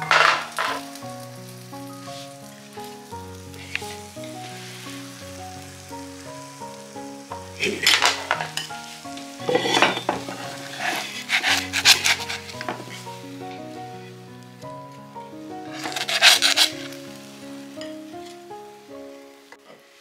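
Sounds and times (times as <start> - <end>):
dumplings sizzling in a frying pan: 0.0 - 20.0.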